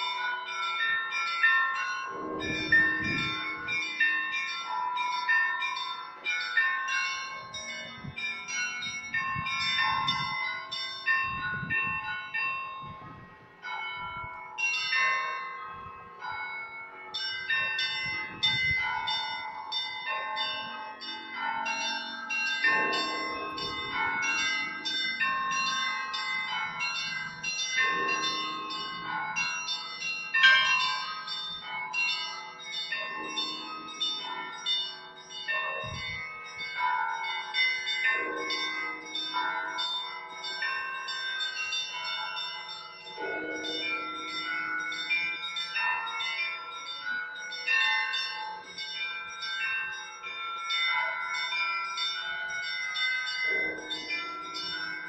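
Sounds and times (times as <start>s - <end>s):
deep church bells struck: 0.0s - 48.8s, 52.6s - 55.0s
small bells ringing rapidly: 0.0s - 55.0s.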